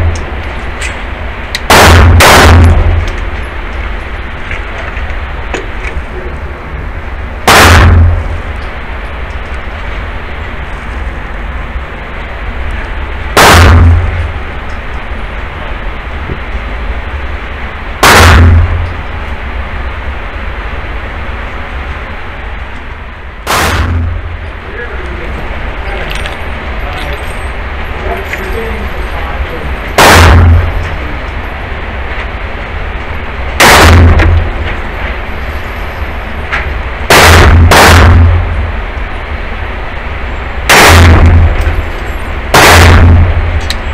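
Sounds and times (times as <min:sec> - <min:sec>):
steady background hiss: 0:00.0 - 0:43.9
loud pistol shot: 0:01.6 - 0:03.4, 0:07.4 - 0:08.4, 0:13.4 - 0:14.4, 0:18.0 - 0:19.0, 0:23.4 - 0:24.2, 0:30.0 - 0:30.9, 0:33.6 - 0:34.6, 0:37.1 - 0:38.6, 0:40.7 - 0:41.9, 0:42.5 - 0:43.6.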